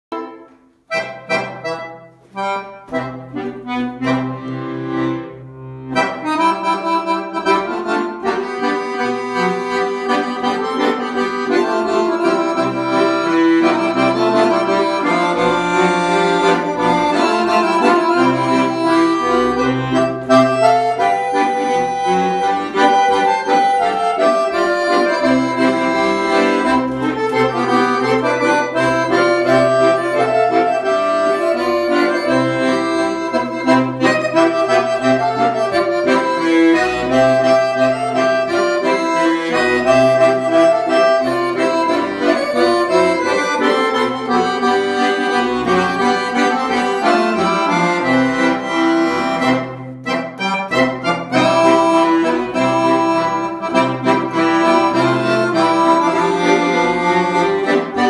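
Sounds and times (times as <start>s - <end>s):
piano accordion playing: 0.1s - 58.0s.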